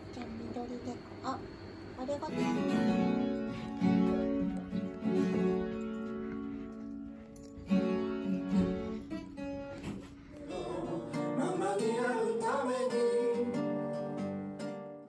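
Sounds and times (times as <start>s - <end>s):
acoustic guitar playing: 2.0s - 15.0s
person singing: 10.3s - 14.2s.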